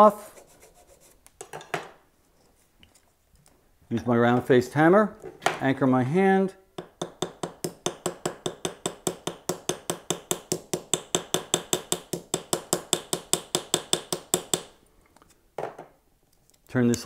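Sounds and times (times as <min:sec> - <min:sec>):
hammer tapping metal rivet: 0:06.8 - 0:14.7.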